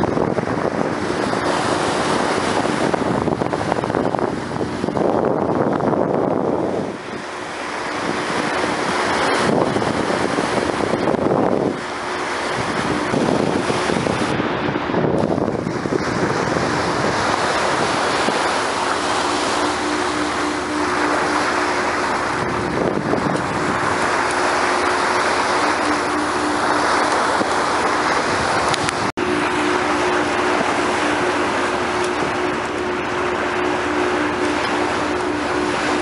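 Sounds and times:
low engine drone: 0.0s - 36.0s
water rushing along a boat bow: 0.0s - 36.0s
wind on the microphone: 0.0s - 36.0s.

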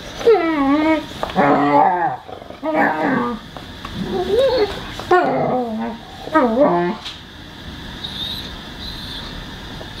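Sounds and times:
dog whining: 0.0s - 3.4s, 4.0s - 7.0s.

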